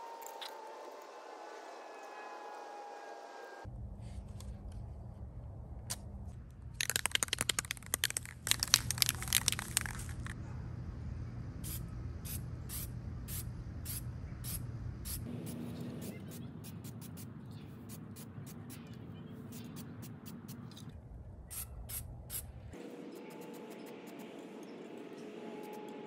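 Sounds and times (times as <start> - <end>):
tape pulled off roll crackling: 6.8 - 10.4.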